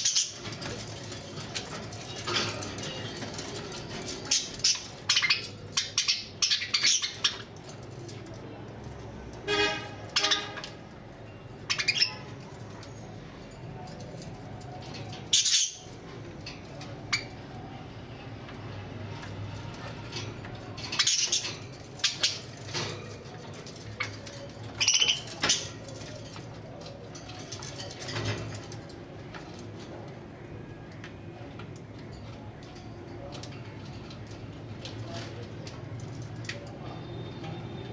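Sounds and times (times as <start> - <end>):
budgerigars chirping: 4.3 - 7.5.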